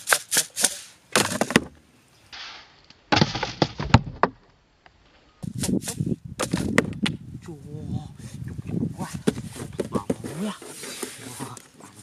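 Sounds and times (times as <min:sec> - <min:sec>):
hands handling cardboard box: 0:09.1 - 0:12.0.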